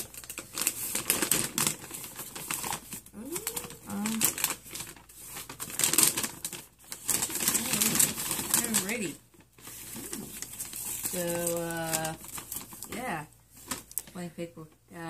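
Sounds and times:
paper bag crinkling: 0.0 - 14.1.

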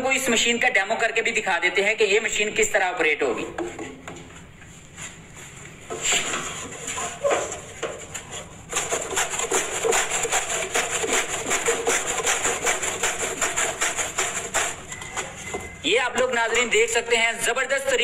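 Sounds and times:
cabbage shredding rasping strokes: 6.0 - 15.5.

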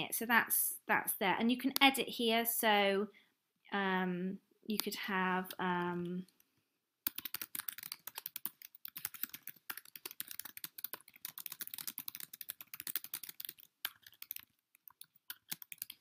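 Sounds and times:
typing on computer keyboard: 7.0 - 16.0.

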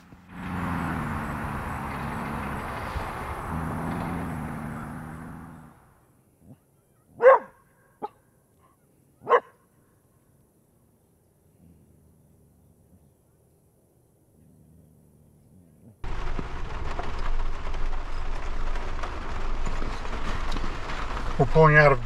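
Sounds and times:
rushing noise with low hum: 0.0 - 6.0, 16.0 - 22.0
dog barking: 6.5 - 9.7
dog yipping: 7.1 - 8.2, 9.2 - 9.6.

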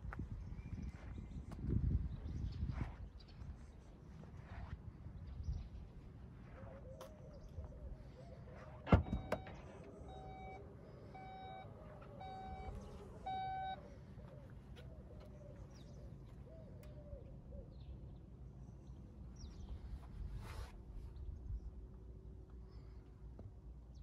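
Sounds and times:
faint bird calls: 6.5 - 18.2
tailgate opening: 8.8 - 10.5
short electronic beeps: 9.0 - 10.6, 11.2 - 13.8.

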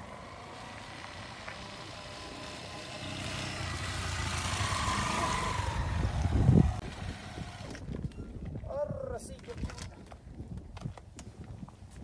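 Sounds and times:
motorcycle engine approaching: 0.0 - 8.1.

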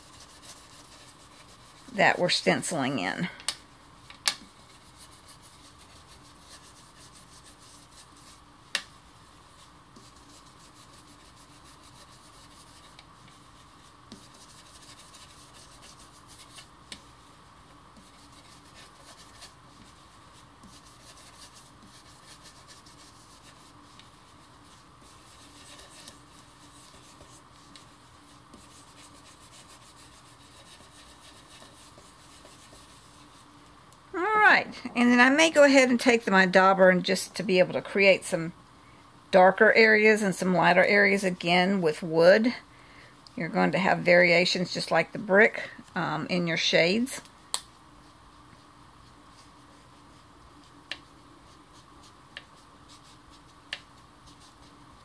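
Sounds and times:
brush rubbing on cardstock: 0.0 - 3.2, 4.4 - 33.6, 48.0 - 55.0.

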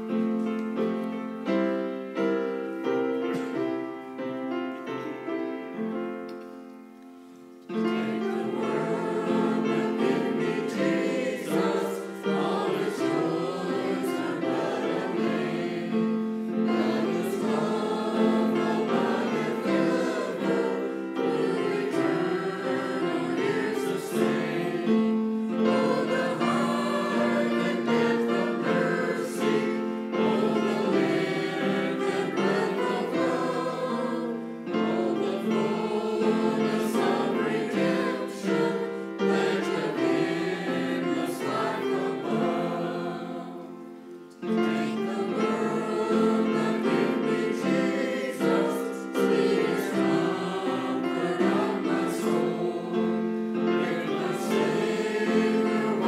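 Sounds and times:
keyboard accompaniment: 0.0 - 56.0
choir singing: 7.6 - 56.0.

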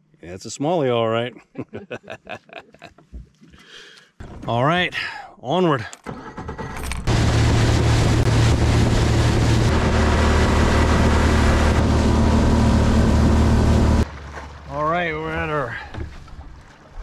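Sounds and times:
water rushing past hull: 6.4 - 17.0
motorboat engine running: 7.0 - 14.7.

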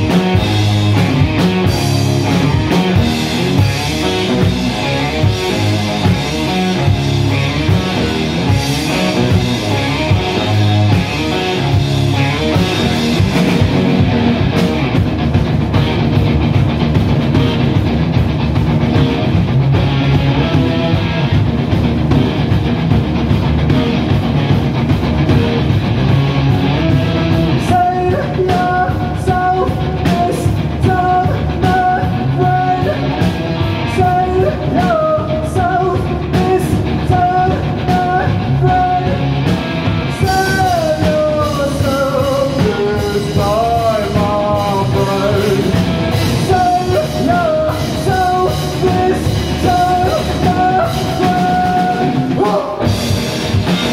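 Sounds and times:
bending guitar lead line: 0.0 - 53.9
rock band playing: 0.0 - 53.9.

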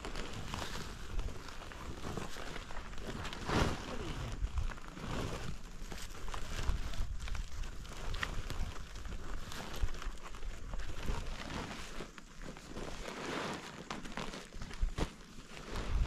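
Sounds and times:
tarp crinkling and flapping: 0.0 - 16.0
whoosh of tarp: 0.1 - 7.4, 10.9 - 16.0.

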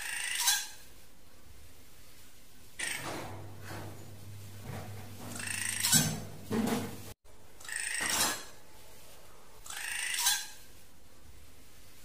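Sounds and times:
drongo calling: 5.3 - 6.2.

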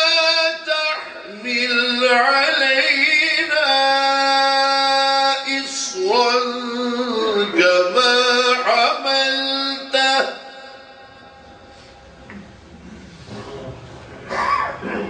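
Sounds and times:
man reciting in melodic sung style: 0.0 - 11.4.

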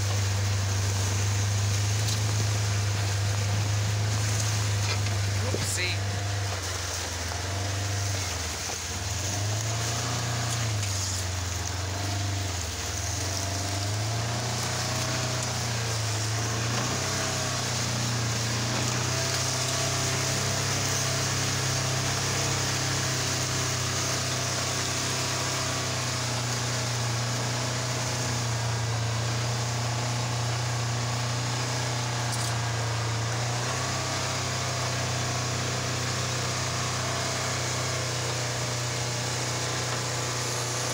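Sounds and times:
buggy engine humming: 0.0 - 40.9.

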